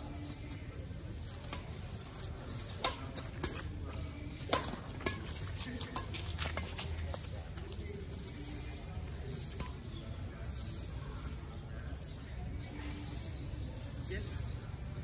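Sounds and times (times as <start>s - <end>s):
rackets hitting shuttlecock: 1.2s - 7.8s, 9.3s - 10.0s.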